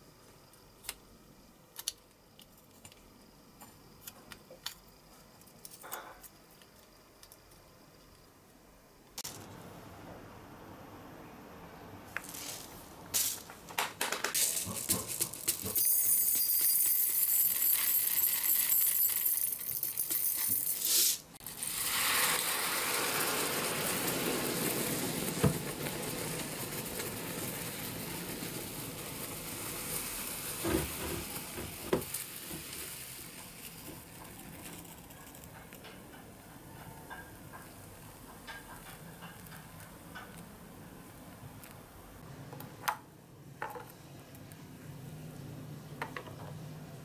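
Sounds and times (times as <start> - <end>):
granules rattling onto metal: 13.2 - 20.8
fizzing and foaming hiss: 20.8 - 34.0.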